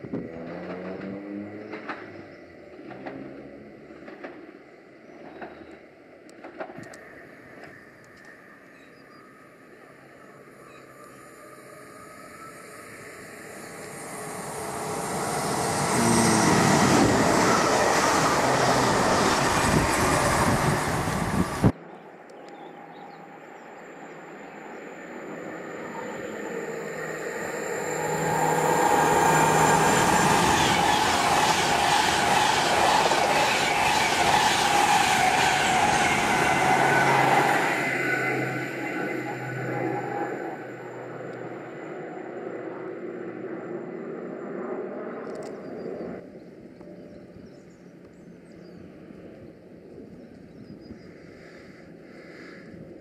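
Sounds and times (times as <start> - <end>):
electric train passing: 0.0 - 53.0
steady high tone: 9.8 - 21.7, 22.8 - 44.3.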